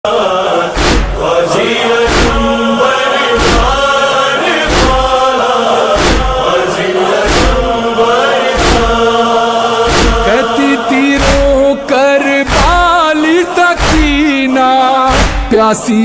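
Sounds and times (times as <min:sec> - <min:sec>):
voices chanting: 0:00.1 - 0:15.7
steady drone: 0:00.2 - 0:11.9.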